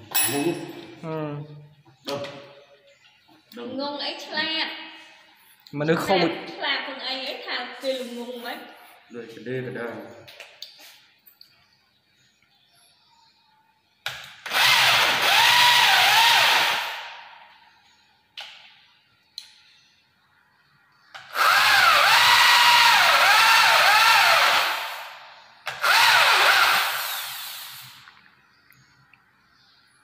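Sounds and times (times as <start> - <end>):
electric drill boring into wood: 14.4 - 17.1, 21.2 - 28.1.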